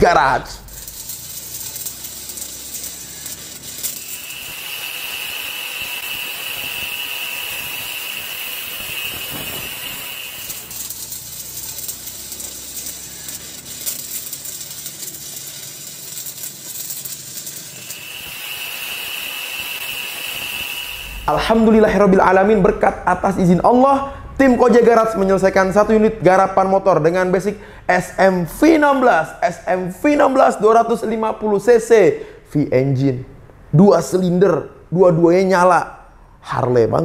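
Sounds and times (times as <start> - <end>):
steady hissing: 0.0 - 22.6
angle grinder cutting steel: 0.6 - 21.8.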